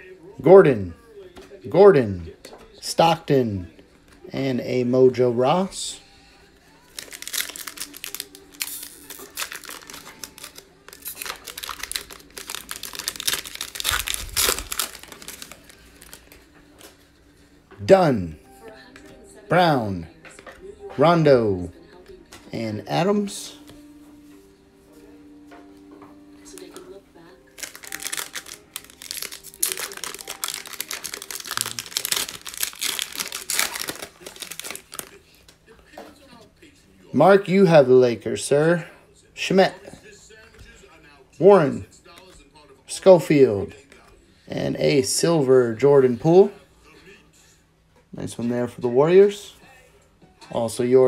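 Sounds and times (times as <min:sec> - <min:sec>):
foil wrapper tearing and crinkling: 0:06.9 - 0:16.4, 0:27.5 - 0:35.2.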